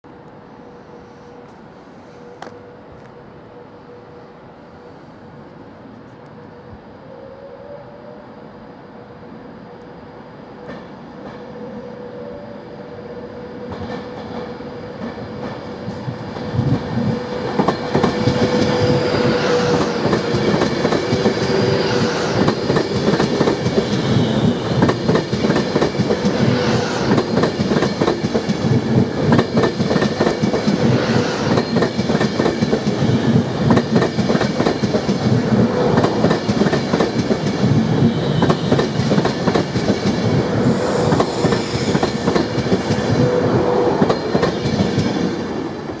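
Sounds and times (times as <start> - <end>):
train wheels rumbling on rails: 13.5 - 46.0.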